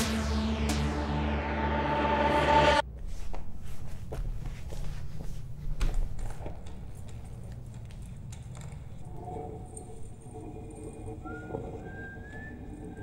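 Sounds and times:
electronic dance-pop music: 0.0 - 2.8
low hum: 0.0 - 2.8.

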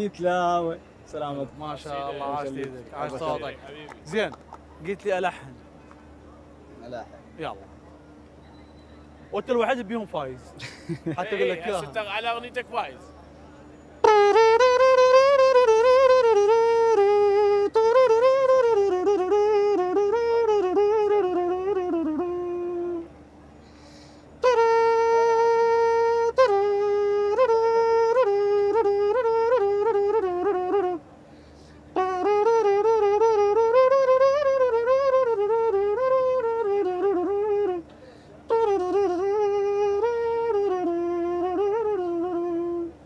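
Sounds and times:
reedy pipe melody: 11.4 - 43.0.

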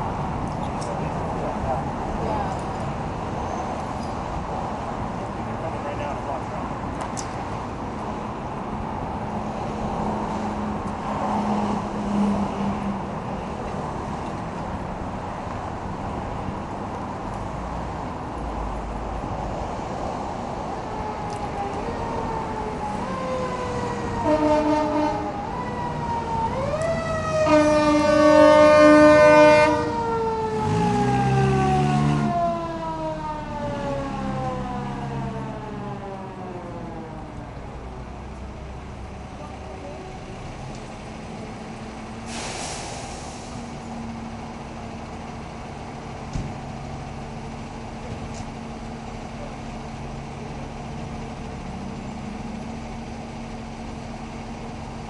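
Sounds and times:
street traffic noise: 0.0 - 55.0
wailing siren: 20.7 - 37.6
loud horn blast: 24.1 - 25.4, 27.2 - 30.0.

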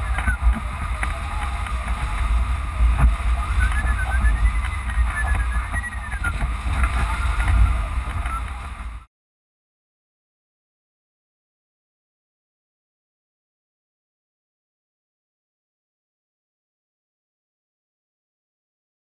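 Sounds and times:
variometer beeping: 0.0 - 0.7, 3.0 - 8.6
wind buffeting microphone: 0.0 - 9.0.

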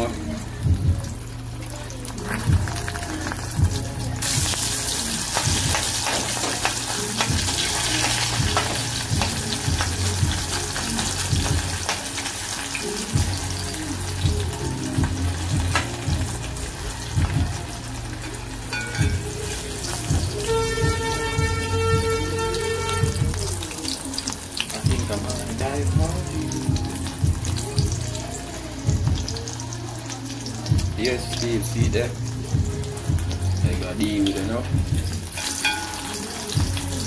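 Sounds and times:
egg sizzling in oil: 1.2 - 25.8, 34.3 - 37.0.

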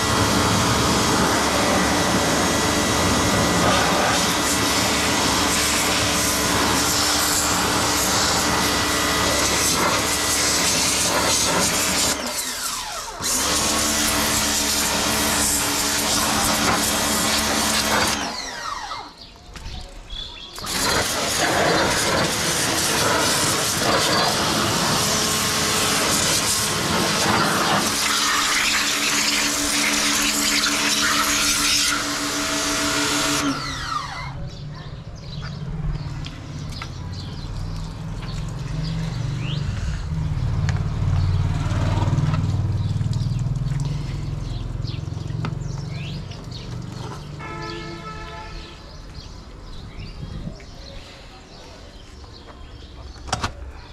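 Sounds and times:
pressure washer jet hissing: 0.0 - 19.1, 20.6 - 34.4
pump motor hum: 0.0 - 19.2, 20.6 - 34.4.

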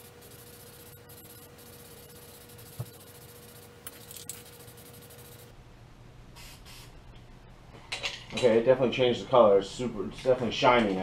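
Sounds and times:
spray-paint can hissing: 0.0 - 5.5, 6.4 - 6.9.

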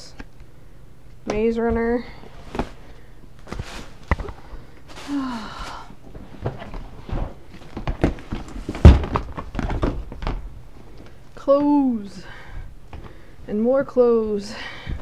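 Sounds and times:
rustling: 2.3 - 9.9
items knocking in plastic tote: 7.7 - 10.4.

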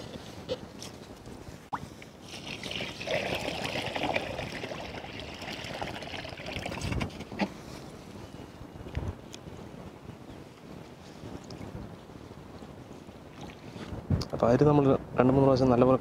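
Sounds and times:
water pouring onto rice: 2.2 - 6.9.

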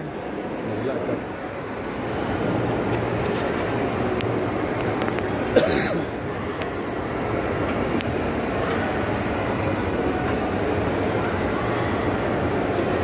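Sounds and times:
shopping mall hubbub: 0.0 - 13.0.

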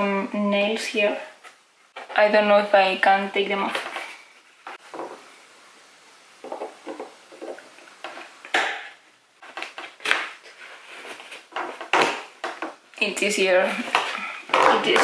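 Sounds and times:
scraping and rustling: 9.4 - 12.7.

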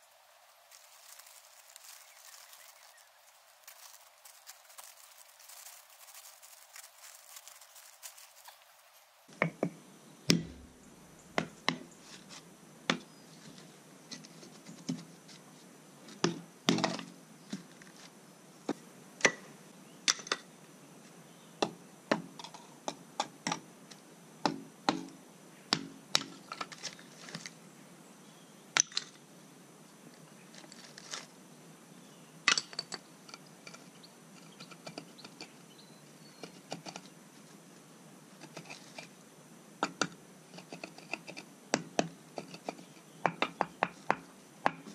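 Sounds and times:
faint hiss: 0.0 - 25.7, 35.6 - 43.3.

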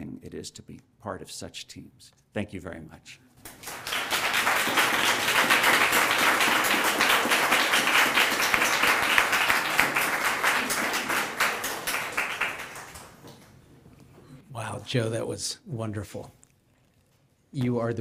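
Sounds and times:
audience applauding: 3.5 - 13.6.

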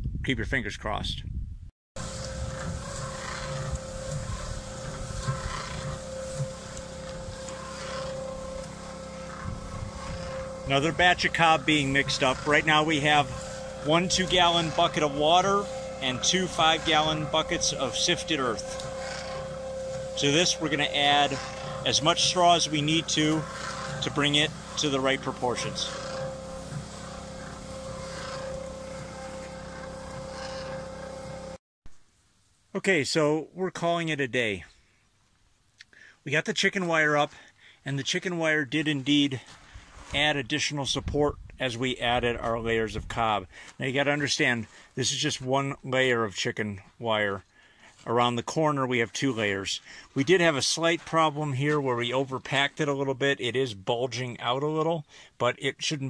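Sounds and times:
cement mixer running: 2.0 - 31.6.

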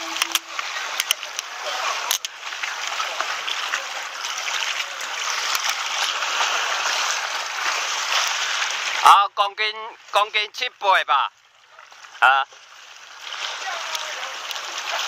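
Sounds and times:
sea water washing over rocks: 0.0 - 11.1, 11.9 - 15.0.

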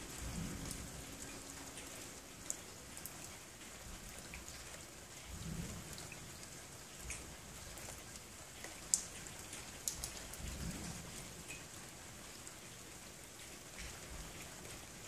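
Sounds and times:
low rumble of thunder: 0.0 - 1.7, 5.3 - 6.4, 10.3 - 11.4.

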